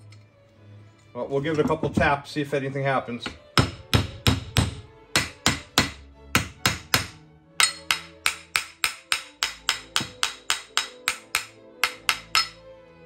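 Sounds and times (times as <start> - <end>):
sharp metal taps: 4.3 - 12.6.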